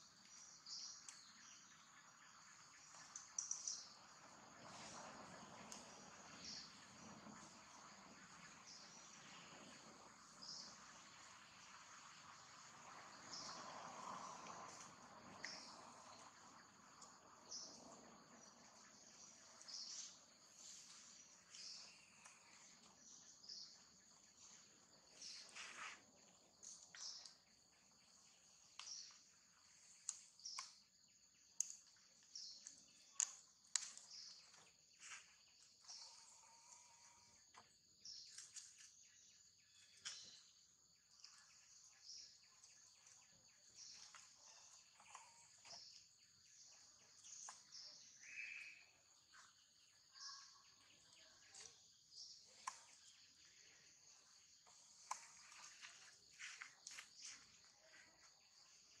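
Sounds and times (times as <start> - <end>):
insect chorus buzzing: 0.0 - 59.0.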